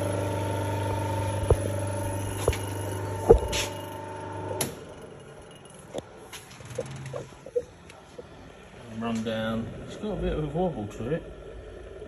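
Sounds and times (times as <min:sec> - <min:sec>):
electric motor hum: 0:00.0 - 0:07.8.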